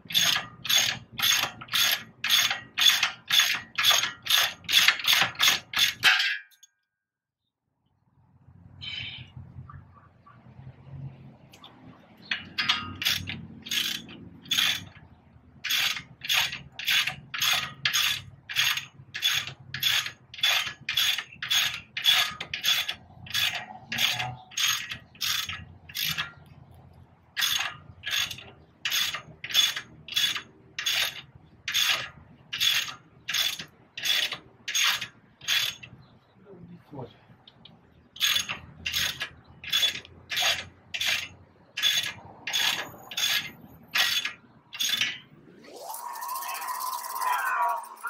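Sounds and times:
ratchet wrench clicking: 0.0s - 6.1s, 12.2s - 26.5s, 27.4s - 35.9s, 38.2s - 45.2s.

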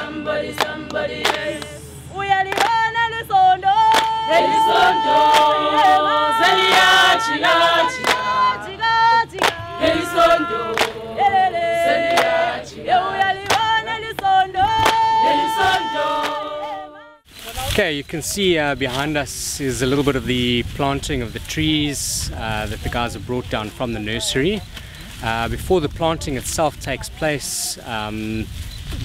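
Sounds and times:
choir singing in harmony: 0.0s - 17.3s.

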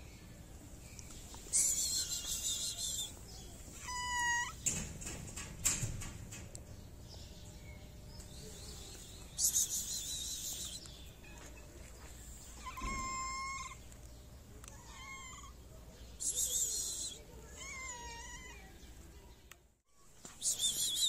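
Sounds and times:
cat meowing: 3.8s - 4.6s, 12.6s - 13.8s, 14.7s - 15.6s, 17.5s - 18.8s.

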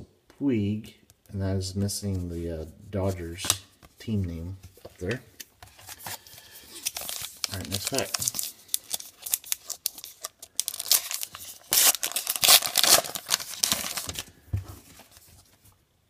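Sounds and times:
wrapper crinkling and tearing: 5.7s - 14.4s.

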